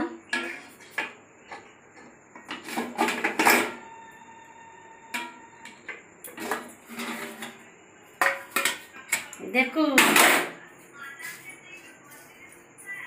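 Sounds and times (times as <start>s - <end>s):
metal cookware knocking: 5.1s - 7.5s, 8.2s - 9.2s.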